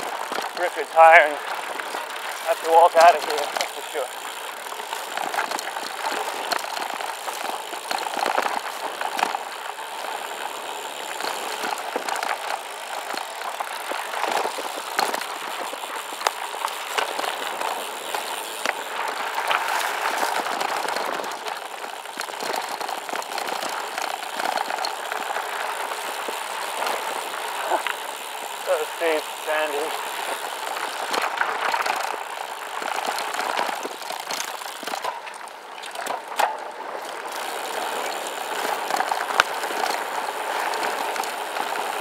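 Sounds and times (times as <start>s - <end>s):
bike rattling over rocks: 0.0s - 42.0s
bike tyres crunching on gravel: 0.0s - 42.0s.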